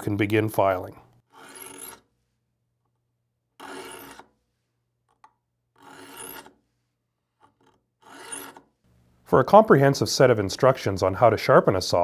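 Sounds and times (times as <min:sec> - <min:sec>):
file rasping on saw teeth: 0:01.3 - 0:02.1, 0:03.6 - 0:04.3, 0:05.8 - 0:06.6, 0:07.6 - 0:08.6.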